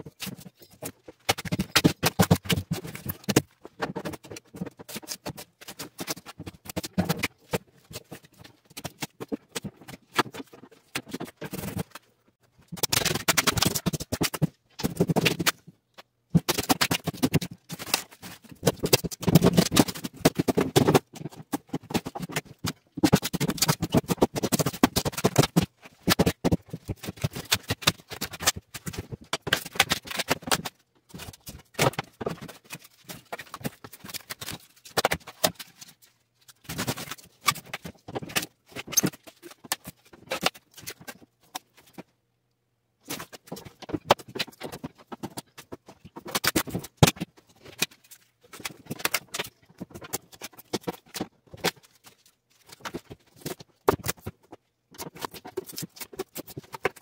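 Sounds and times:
foam insulation crunching and scraping: 16.4s - 42.0s.

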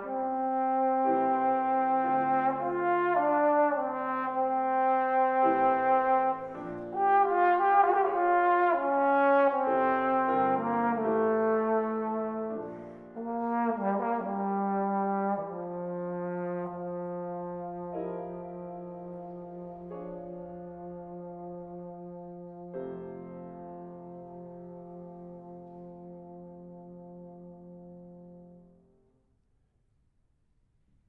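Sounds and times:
trombone notes: 0.0s - 22.7s
piano chords: 0.0s - 29.1s.

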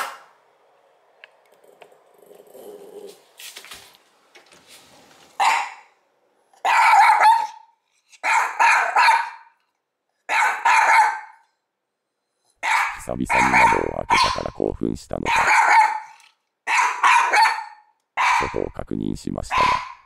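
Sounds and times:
small dog barking: 5.4s - 5.9s, 6.6s - 9.5s, 10.3s - 11.4s, 12.6s - 14.4s, 15.3s - 18.6s, 19.5s - 20.0s.

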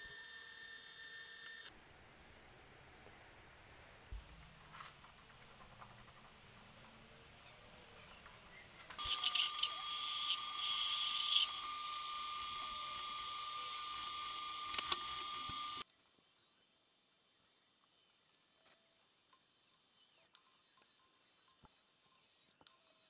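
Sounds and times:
drill squealing in metal: 9.0s - 15.8s
metal lathe whining: 9.0s - 15.8s.

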